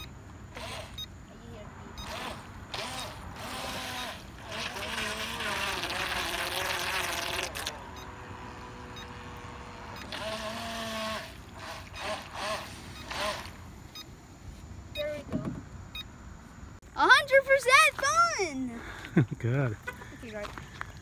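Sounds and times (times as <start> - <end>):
electric motor whining: 0.5 - 1.1, 1.8 - 13.6.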